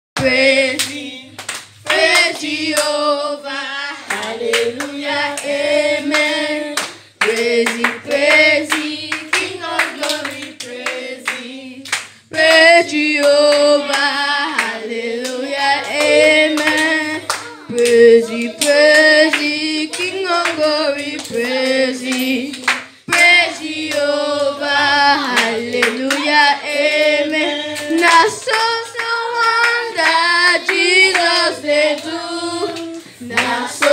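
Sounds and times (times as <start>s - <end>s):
hand claps: 4.0s - 24.1s, 25.3s - 26.3s, 26.9s - 33.9s
girl singing into microphone: 15.4s - 23.6s.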